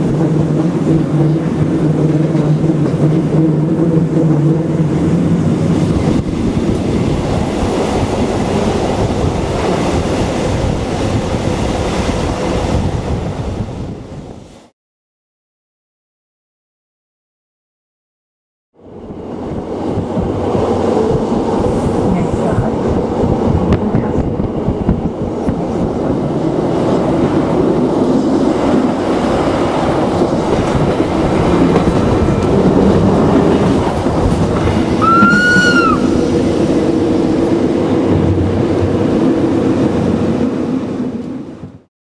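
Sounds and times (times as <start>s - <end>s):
train wheels rumbling on rails: 0.0s - 14.7s, 18.8s - 41.9s
train wheel squeal: 34.9s - 36.3s.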